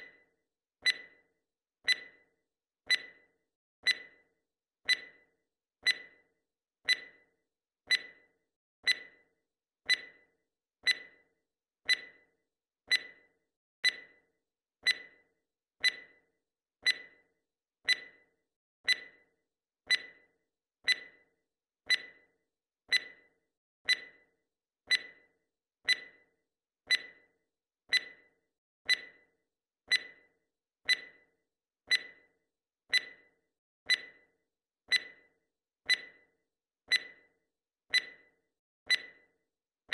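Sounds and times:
clock ticking: 0.8s - 1.2s, 1.8s - 2.2s, 2.9s - 3.2s, 4.9s - 5.2s, 21.9s - 22.2s, 32.9s - 33.3s, 33.9s - 34.2s, 34.9s - 35.2s, 35.9s - 36.2s, 37.9s - 38.3s, 38.9s - 39.2s.

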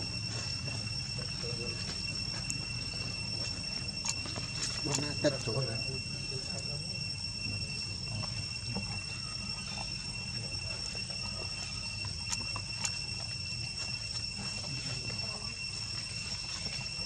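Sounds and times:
insect drone: 0.0s - 17.0s.

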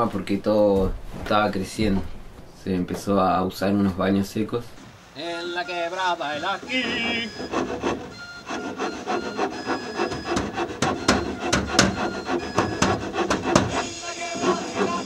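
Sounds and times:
steady hiss: 0.2s - 8.0s, 12.2s - 15.0s
wood rubbing and scraping: 5.3s - 15.0s
sharp knocks on wood: 10.0s - 13.8s.

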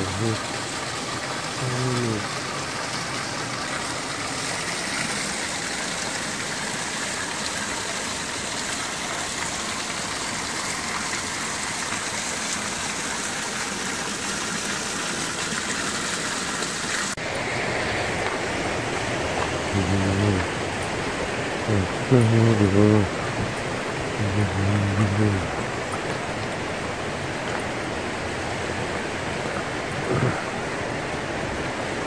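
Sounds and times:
person's voice: 0.0s - 0.4s, 1.6s - 2.4s, 19.7s - 20.6s, 21.7s - 23.3s, 24.2s - 25.6s, 30.0s - 30.5s
water pouring and splashing on rocks: 0.0s - 32.0s.

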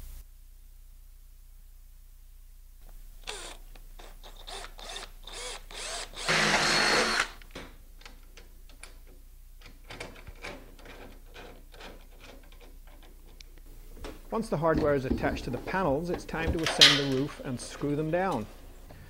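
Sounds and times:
cordless drill boring through metal: 3.2s - 3.6s, 4.2s - 7.4s.

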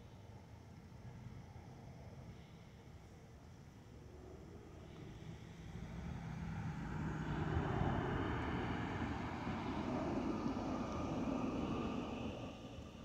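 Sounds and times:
jet engine roar: 6.8s - 13.0s.

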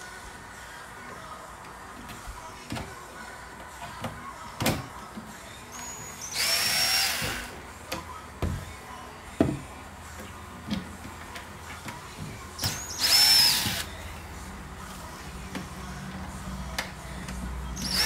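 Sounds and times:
cordless drill whine: 6.2s - 7.5s, 12.6s - 13.9s, 17.8s - 18.0s.

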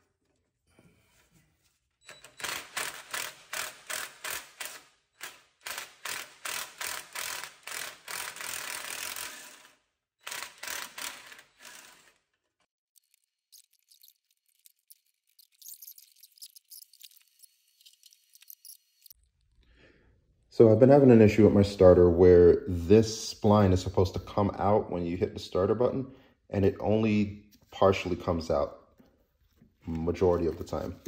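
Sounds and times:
cordless power tool pulsing: 2.2s - 12.2s.

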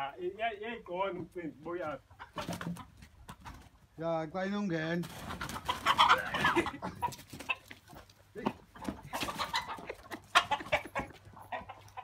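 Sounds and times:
chickens clucking and squawking: 1.0s - 4.0s, 5.0s - 12.0s.

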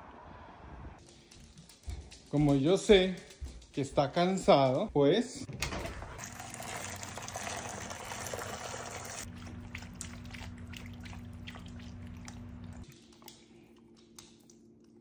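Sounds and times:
water pouring into bowl: 5.9s - 13.2s
dog lapping water: 6.1s - 15.0s
steady low hum: 9.3s - 15.0s.

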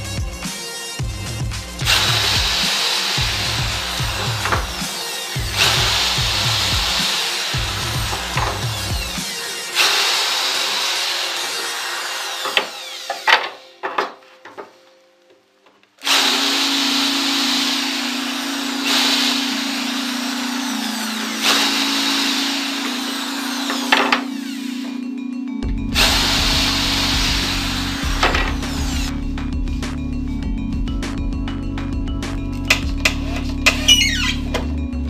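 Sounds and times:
electric drill boring into chipboard: 1.8s - 14.0s, 16.0s - 25.1s, 25.9s - 29.1s
drill knocks: 1.8s - 14.6s, 16.0s - 25.0s, 26.0s - 29.1s.

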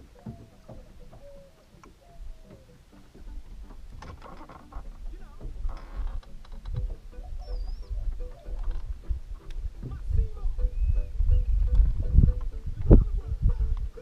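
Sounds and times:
wind rumble on microphone: 5.1s - 14.0s.

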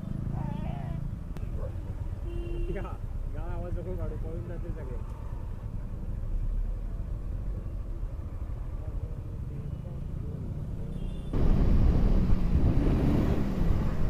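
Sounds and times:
motorcycle engine and road rumble: 0.0s - 14.0s
rush of wind noise: 11.3s - 14.0s.

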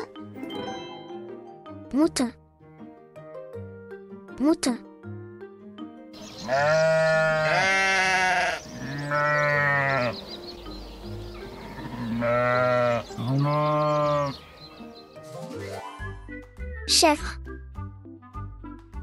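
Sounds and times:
sheep bleating: 6.4s - 10.2s, 11.4s - 14.4s.

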